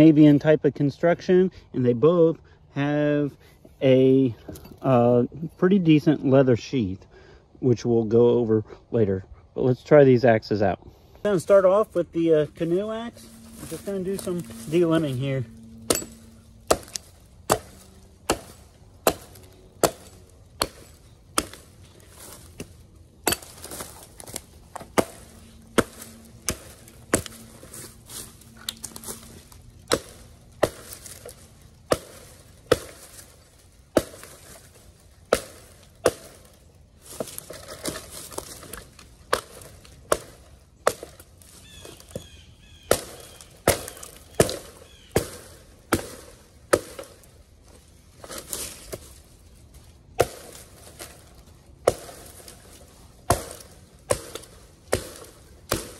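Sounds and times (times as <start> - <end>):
axe strikes into wood: 15.8 - 21.7, 22.5 - 27.4, 29.9 - 33.3, 34.0 - 34.6, 35.3 - 36.5, 39.3 - 41.2, 42.9 - 47.2, 50.2 - 51.1, 51.8 - 52.5, 53.2 - 55.9.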